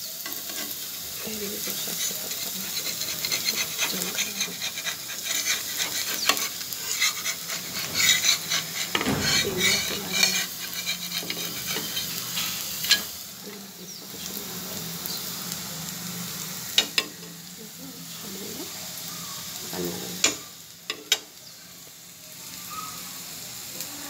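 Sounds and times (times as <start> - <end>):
food sizzling on a hot pan: 0.0 - 24.0
metal spatula scraping a pan: 0.1 - 13.2.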